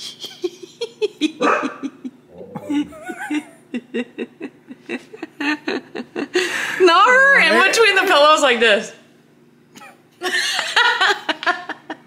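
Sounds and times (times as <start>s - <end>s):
people laughing: 0.2s - 7.4s, 10.2s - 12.0s.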